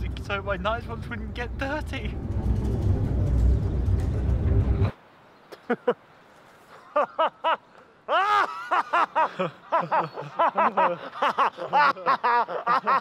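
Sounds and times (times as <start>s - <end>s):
man laughing heartily: 5.5s - 6.0s, 6.7s - 13.0s.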